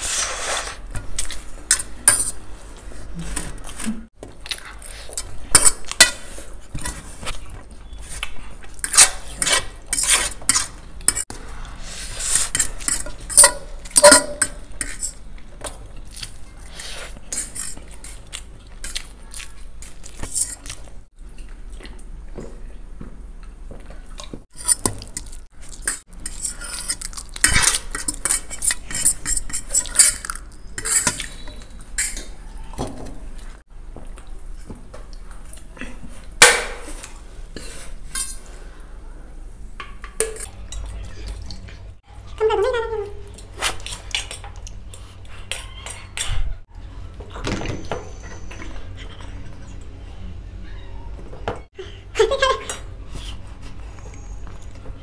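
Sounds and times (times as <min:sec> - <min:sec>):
forks clinking on metal plates: 0:12.6 - 0:15.2.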